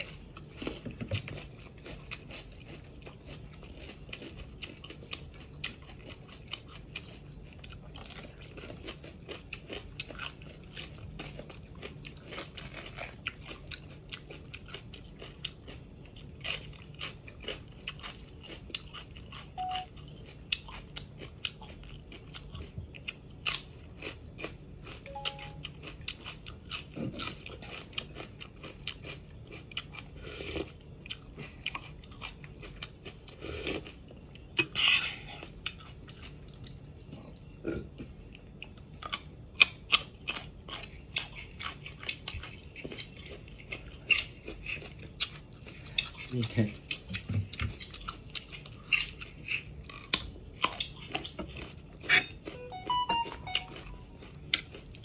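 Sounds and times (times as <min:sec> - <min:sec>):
crunching raw bell pepper: 0:07.8 - 0:31.3, 0:38.9 - 0:52.6.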